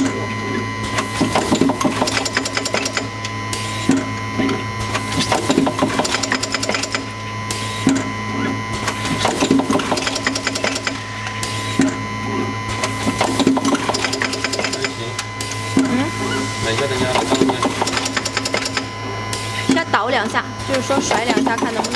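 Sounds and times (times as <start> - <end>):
bowl feeder buzzing and rattling: 4.8 - 21.9.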